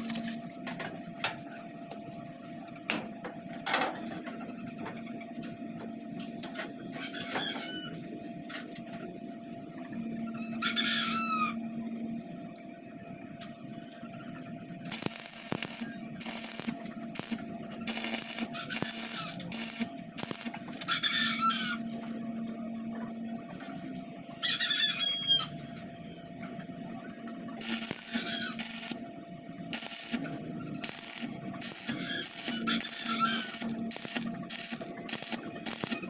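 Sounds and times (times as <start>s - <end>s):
chicken clucking: 6.7s - 12.4s, 18.5s - 19.5s, 20.7s - 28.6s, 31.4s - 33.8s
low hum: 8.1s - 24.4s, 25.5s - 36.0s
arc welding crackle: 14.8s - 20.9s, 27.6s - 29.1s, 29.7s - 36.0s.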